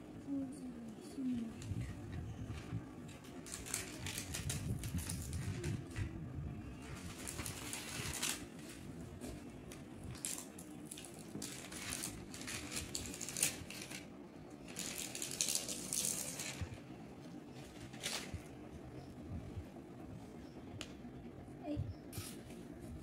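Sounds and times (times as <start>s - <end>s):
paper and plastic wrapping rustling: 2.5s - 6.1s, 6.8s - 16.8s, 17.6s - 18.6s.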